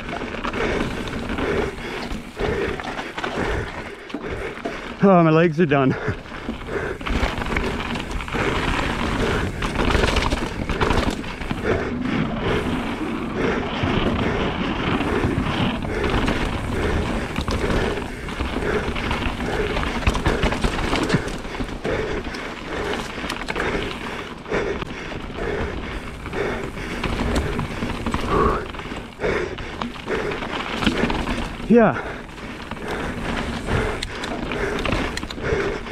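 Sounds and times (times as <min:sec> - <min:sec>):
bike rattling over trail: 0:00.0 - 0:35.9
rider breathing hard: 0:00.0 - 0:35.9.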